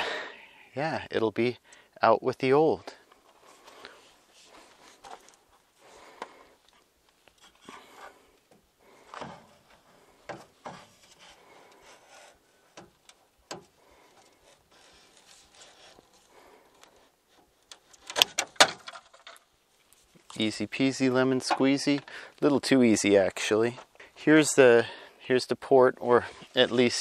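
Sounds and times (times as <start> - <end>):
wire bundle rubbing: 13.8 - 18.2.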